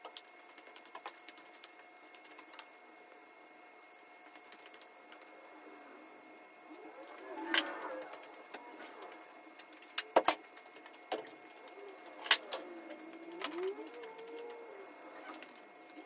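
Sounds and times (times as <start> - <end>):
faint wavering tone: 11.3 - 16.0.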